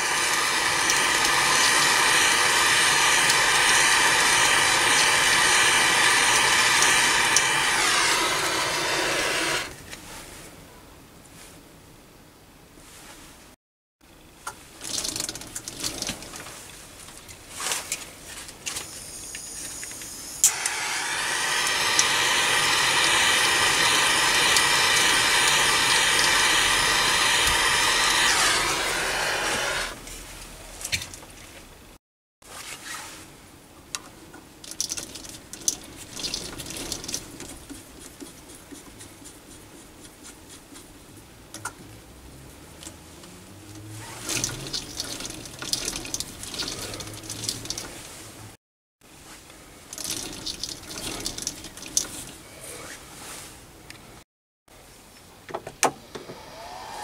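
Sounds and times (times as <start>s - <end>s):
hot-air gun blowing: 0.0s - 9.8s, 19.8s - 30.0s, 56.1s - 57.0s.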